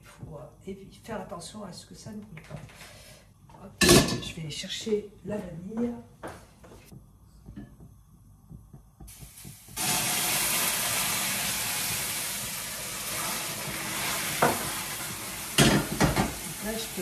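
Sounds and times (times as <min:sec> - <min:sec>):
caramel hissing and sizzling: 0:09.0 - 0:17.0.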